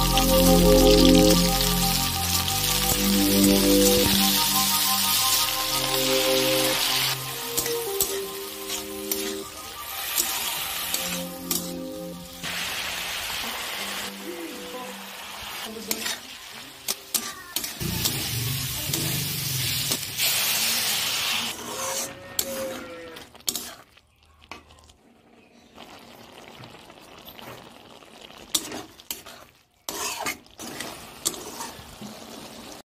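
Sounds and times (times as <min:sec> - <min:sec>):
food sizzling in oil: 0:00.0 - 0:22.6, 0:23.3 - 0:24.0, 0:25.8 - 0:32.8
metal spatula scraping wok: 0:02.4 - 0:12.6, 0:15.1 - 0:24.0, 0:28.5 - 0:32.0.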